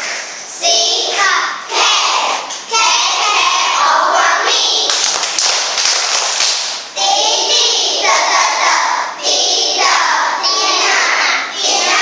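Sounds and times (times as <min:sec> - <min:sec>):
children singing in unison: 0:00.6 - 0:04.9, 0:07.0 - 0:12.0
children clapping hands: 0:04.9 - 0:06.8.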